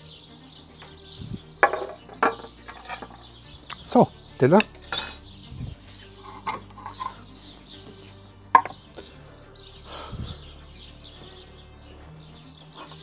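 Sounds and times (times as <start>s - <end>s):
birds chirping: 0.0s - 13.0s
crockery and utensils clinking: 1.6s - 3.2s, 4.6s - 5.3s, 6.2s - 7.2s.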